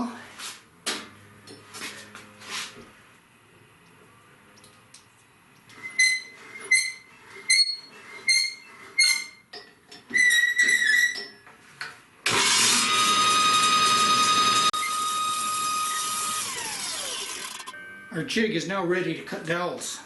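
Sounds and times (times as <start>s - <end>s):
handwheel squeaking: 5.7s - 9.5s, 10.1s - 11.4s
table saw motor whining: 12.3s - 17.7s.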